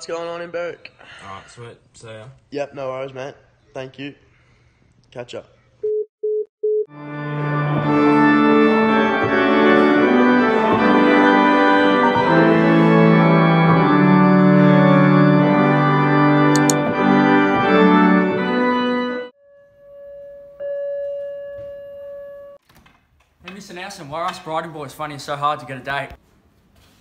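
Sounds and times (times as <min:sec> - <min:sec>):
organ playing slow chords: 0:06.9 - 0:19.4.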